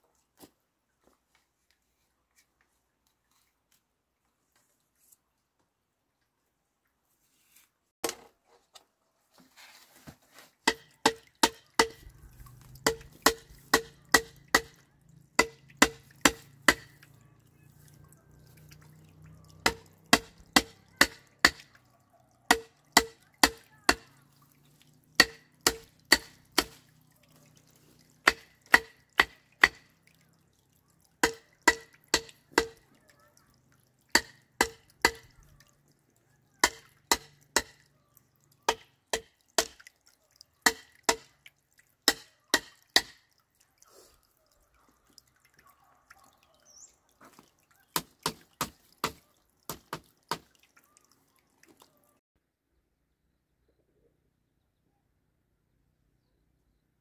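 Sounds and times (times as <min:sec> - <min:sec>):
hammer striking stakes: 0:10.6 - 0:14.8, 0:15.4 - 0:17.0, 0:19.6 - 0:21.7, 0:22.5 - 0:24.2, 0:25.2 - 0:26.8, 0:28.2 - 0:29.9, 0:31.2 - 0:32.8, 0:34.1 - 0:35.3, 0:36.6 - 0:37.9, 0:38.7 - 0:39.8, 0:40.6 - 0:41.4, 0:42.0 - 0:43.3, 0:48.0 - 0:50.5.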